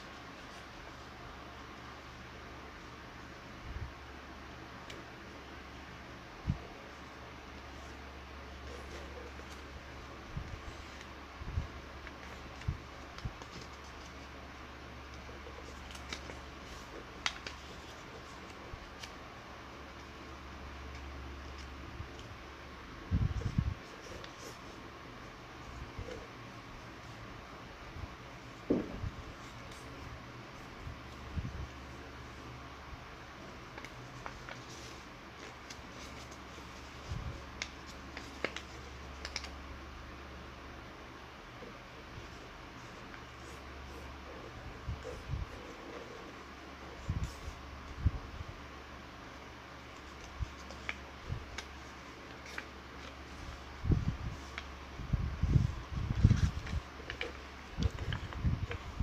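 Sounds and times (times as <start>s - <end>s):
steady low hum: 0.0s - 59.0s
paper being folded: 6.7s - 22.4s, 23.0s - 27.2s, 28.4s - 32.5s, 33.2s - 39.6s, 41.6s - 48.1s, 49.7s - 59.0s
paper crinkling: 7.7s - 11.1s, 12.0s - 20.3s, 33.4s - 39.6s, 41.6s - 48.0s, 49.7s - 54.8s, 55.4s - 59.0s.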